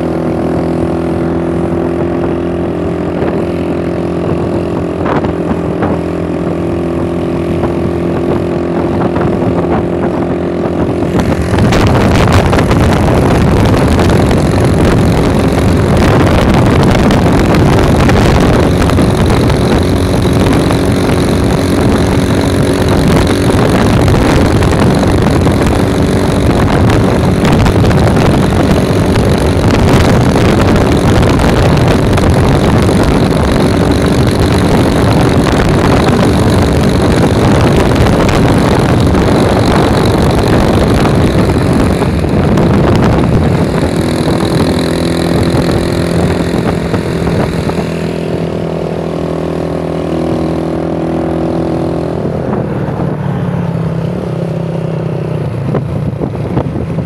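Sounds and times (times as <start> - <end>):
vehicle engine running: 0.0 - 57.0
wind rushing on microphone: 0.0 - 57.0.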